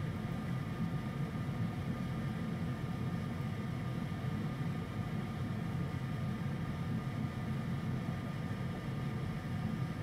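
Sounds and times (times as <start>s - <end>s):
low machine hum and hiss: 0.0s - 10.0s.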